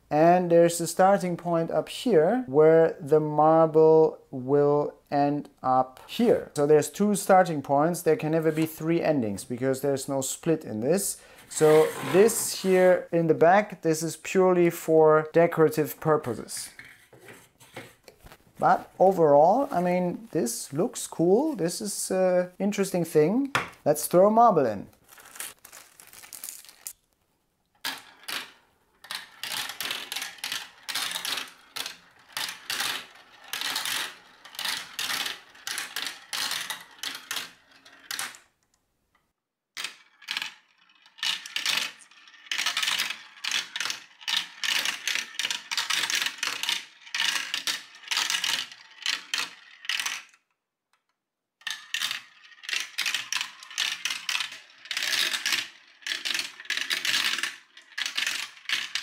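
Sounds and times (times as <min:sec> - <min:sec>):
marbles rattling down plastic tubes: 0:11.5 - 0:13.0, 0:25.1 - 0:27.0, 0:27.8 - 0:38.4, 0:39.8 - 0:50.4, 0:51.6 - 0:59.0.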